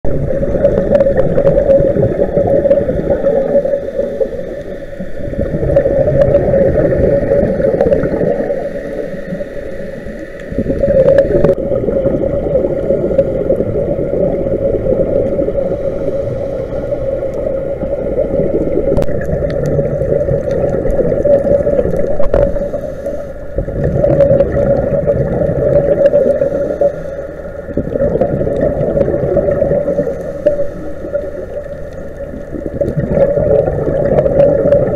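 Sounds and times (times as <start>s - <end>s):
muffled underwater drone: 0.0s - 34.9s.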